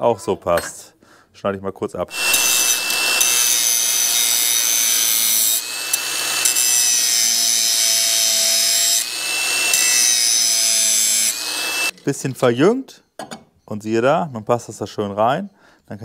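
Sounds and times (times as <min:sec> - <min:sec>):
angle grinder cutting metal: 0:02.1 - 0:12.0.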